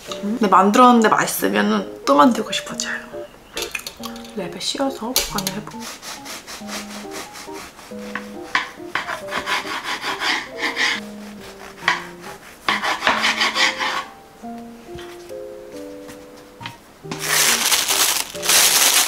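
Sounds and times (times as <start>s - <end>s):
bread knife sawing through loaf: 5.7s - 8.4s, 9.0s - 14.1s.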